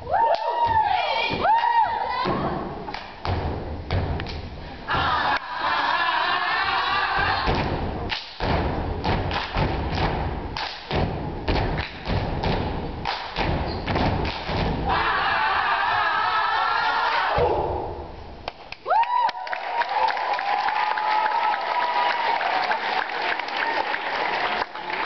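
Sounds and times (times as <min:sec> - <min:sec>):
crowd cheering: 0:00.0 - 0:02.3, 0:14.8 - 0:17.8, 0:18.8 - 0:25.0
feet stomping on stage floor: 0:03.2 - 0:04.5, 0:07.2 - 0:14.9.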